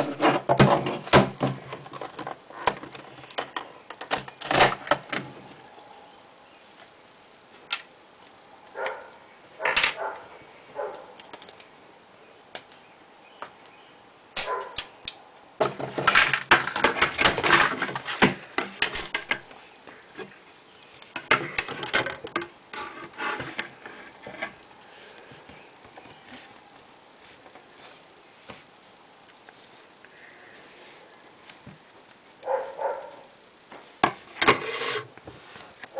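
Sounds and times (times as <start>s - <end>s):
plastic bricks clicking and clattering: 15.6s - 19.5s.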